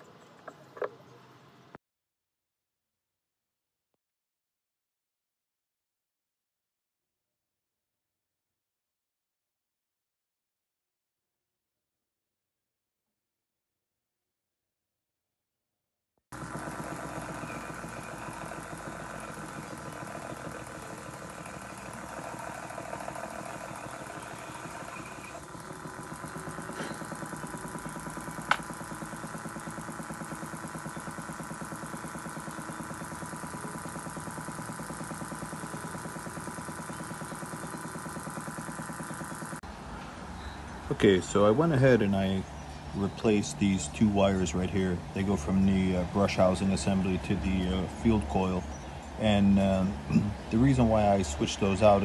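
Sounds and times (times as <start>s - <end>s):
electric motor humming: 16.3s - 39.6s.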